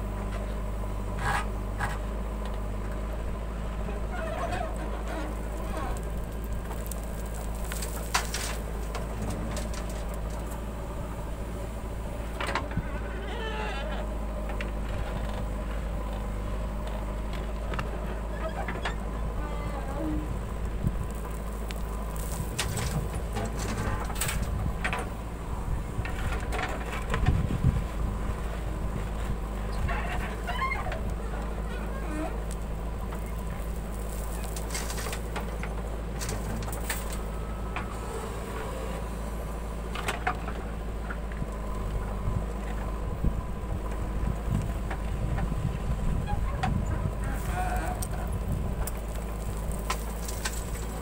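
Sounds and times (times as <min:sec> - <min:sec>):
diesel engine running: 0:00.0 - 0:51.0
clicks of soil and stones: 0:00.2 - 0:43.0, 0:43.9 - 0:51.0.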